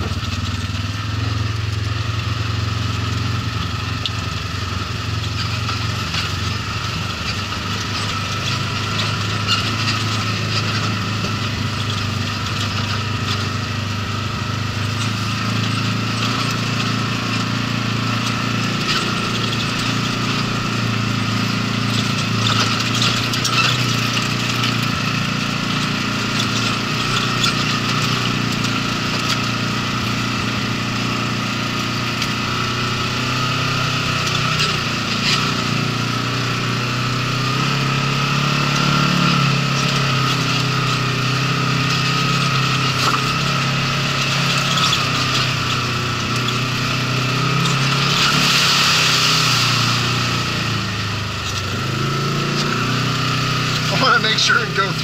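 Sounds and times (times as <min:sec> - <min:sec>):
vehicle engine running steadily: 0:00.0 - 0:55.0.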